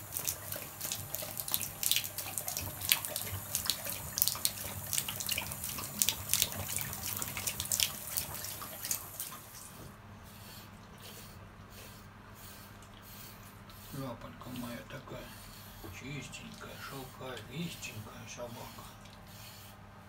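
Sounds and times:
tap water running into bathtub: 0.0s - 10.0s
dog lapping water: 0.0s - 19.8s.

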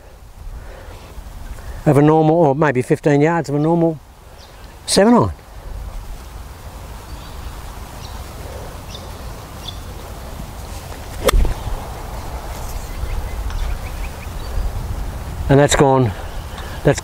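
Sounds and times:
wind rumble on microphone: 5.6s - 16.8s
golf club striking ball: 11.2s - 11.8s.

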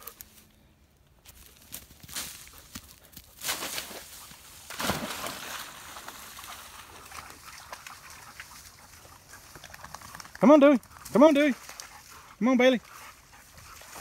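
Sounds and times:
dogs splashing into water: 3.5s - 10.4s
dogs sloshing through water: 3.8s - 14.0s.

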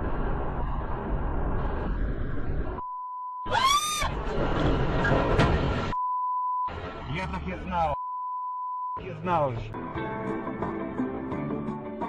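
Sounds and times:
short rising and falling cry: 3.4s - 4.2s
road and engine noise in car: 6.7s - 8.0s, 9.0s - 11.4s.

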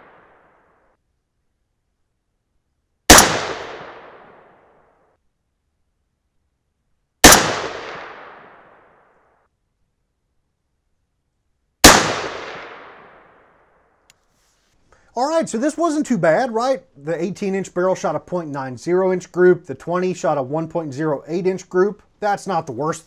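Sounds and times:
rifle shots with echo: 3.1s - 4.7s, 7.2s - 9.0s, 11.8s - 13.6s.

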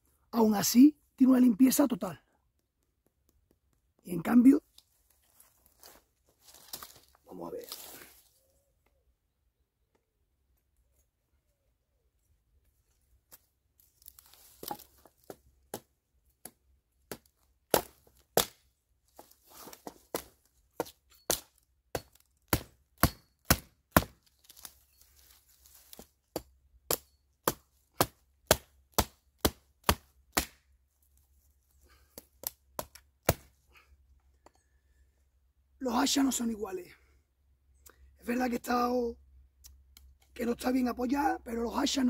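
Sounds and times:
hatchet chopping wood: 14.6s - 18.6s, 19.8s - 24.3s, 25.9s - 30.7s, 32.1s - 33.6s.

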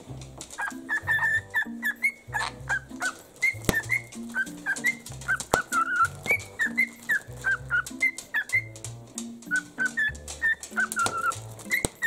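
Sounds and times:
cockatiel whistled chirps: 0.6s - 8.8s, 9.4s - 12.0s.

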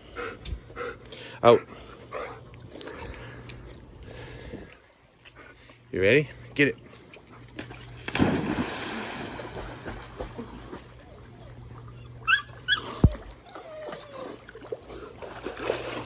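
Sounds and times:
water splashing: 7.6s - 16.0s
dog yipping: 12.2s - 14.0s.

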